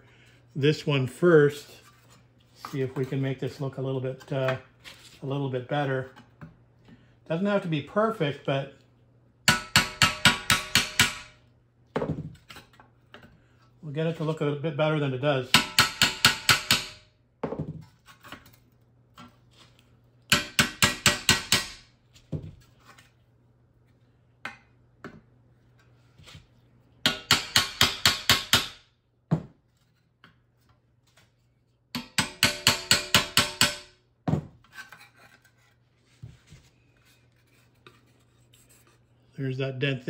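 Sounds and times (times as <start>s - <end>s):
hammer tapping chisel on metal: 9.5s - 11.4s, 15.5s - 17.0s, 20.3s - 21.8s, 27.0s - 28.8s, 32.0s - 34.0s.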